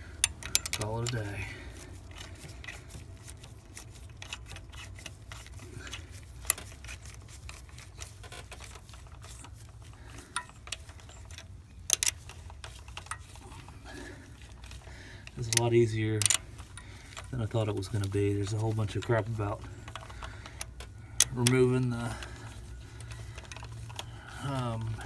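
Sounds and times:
socket ratchet clicking: 0.0 - 1.2, 10.3 - 13.3, 15.3 - 17.3
sharp metal clicks: 0.0 - 13.8, 14.4 - 25.0.

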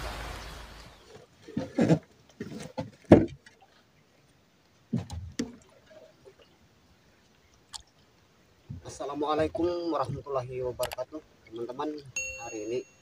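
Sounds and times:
dull knocks in a boat: 2.8 - 3.5.

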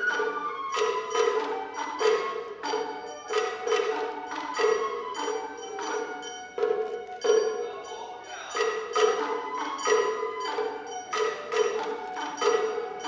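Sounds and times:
bamboo flutes playing melody: 0.0 - 13.0
drum strokes: 0.0 - 13.0
ringing metal strikes: 1.2 - 13.0.

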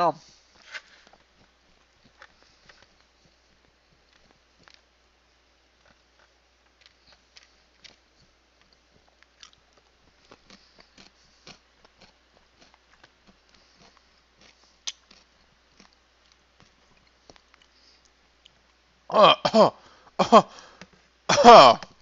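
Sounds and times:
person chewing crunchy food: 5.8 - 18.8
wet mouth clicks: 9.3 - 9.6, 14.8 - 16.4.

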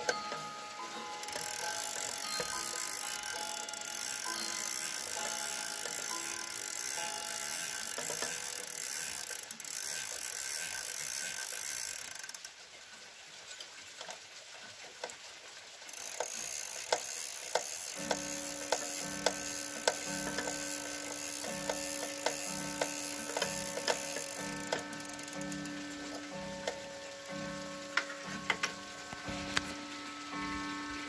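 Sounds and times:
clock winding ratchet clicking: 0.0 - 12.5, 15.9 - 31.0
ringing gong tones: 17.9 - 31.0.

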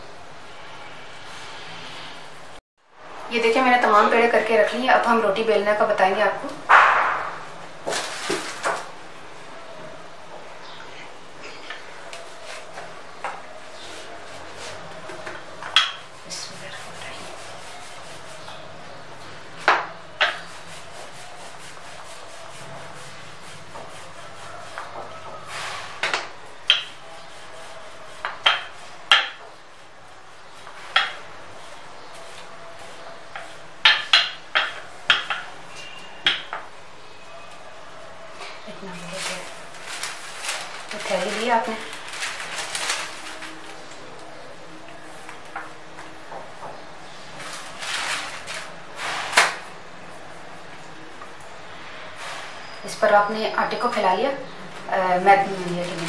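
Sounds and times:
sharp slap: 6.7 - 7.5
plastic sheet crinkling: 6.7 - 9.0, 38.7 - 44.3, 47.2 - 49.8, 55.1 - 56.0
rolling pin rubbing dough: 11.7 - 18.9, 20.1 - 36.5.

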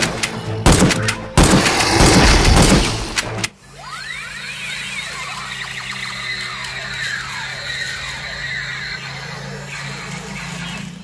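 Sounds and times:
loud crashing and thumping: 0.6 - 3.5.

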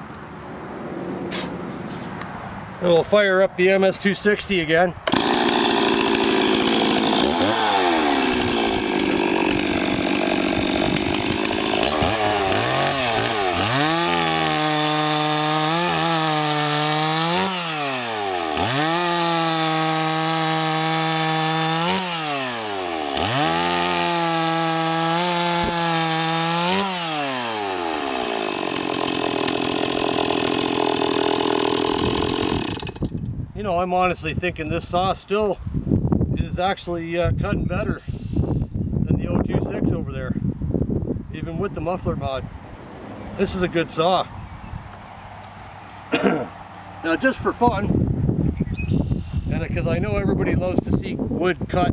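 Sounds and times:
chainsaw cutting wood: 5.0 - 33.2.

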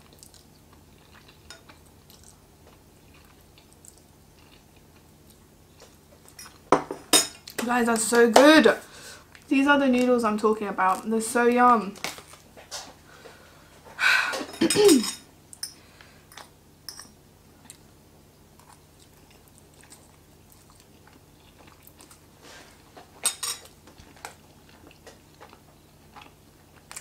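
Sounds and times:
person chewing noodles: 0.0 - 6.6, 18.5 - 27.0.

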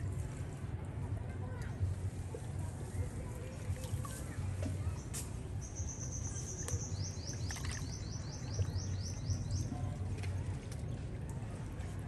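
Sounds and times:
bird chirping: 5.6 - 9.7.

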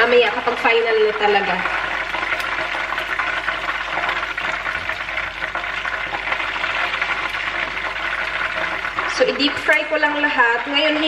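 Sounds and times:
oil sizzling and crackling: 0.0 - 11.0.

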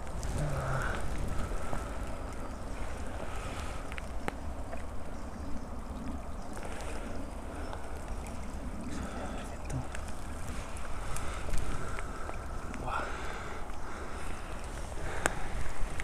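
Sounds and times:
low microphone rumble: 0.0 - 3.9
rustling of dry pine needles: 0.0 - 5.2, 6.0 - 16.0.

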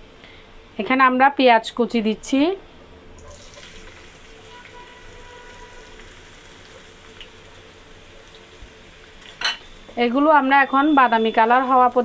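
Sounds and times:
onions sizzling in hot oil: 3.2 - 12.0.

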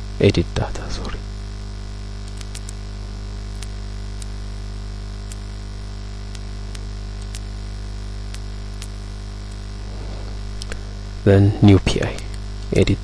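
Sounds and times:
electrical mains hum: 0.0 - 13.0
microphone hiss: 0.0 - 13.0
faint sharp clicks: 2.2 - 2.8, 3.6 - 4.3, 6.3 - 7.5.

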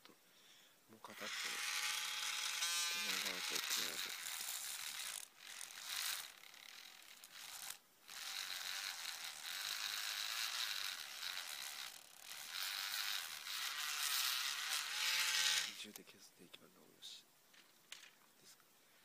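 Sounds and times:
rotary tool buzzing: 1.0 - 16.0.

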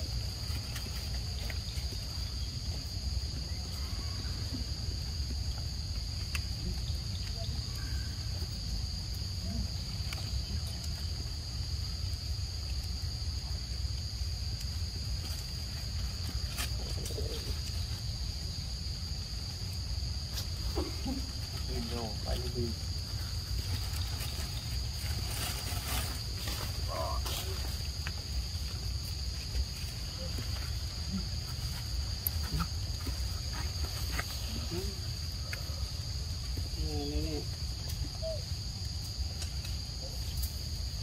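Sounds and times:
high-pitched insect drone: 20.8 - 39.2.

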